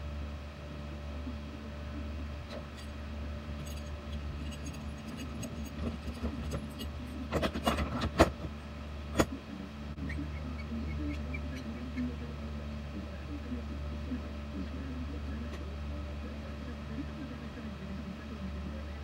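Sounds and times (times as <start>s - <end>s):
steady low hum: 0.0s - 19.0s
metal tools clinking and knocking: 3.6s - 8.0s.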